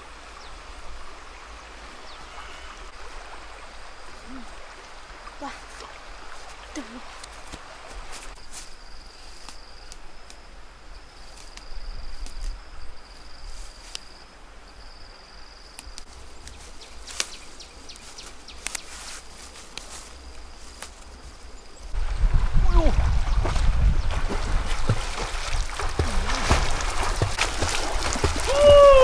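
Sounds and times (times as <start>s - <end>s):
grass and stems crackling: 5.4s - 10.5s, 11.1s - 14.2s, 15.7s - 22.0s, 24.2s - 29.0s.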